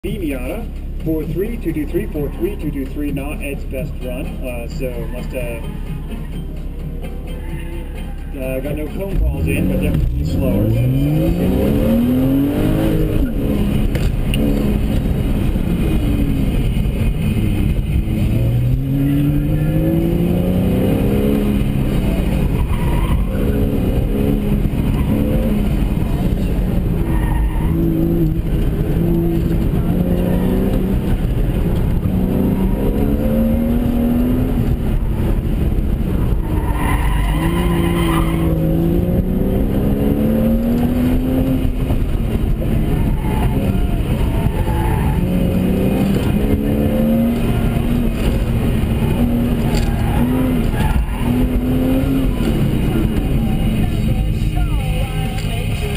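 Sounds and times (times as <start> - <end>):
car engine accelerating: 0.0 - 55.9
tyres squealing: 22.3 - 23.8, 36.4 - 38.8, 42.7 - 55.9.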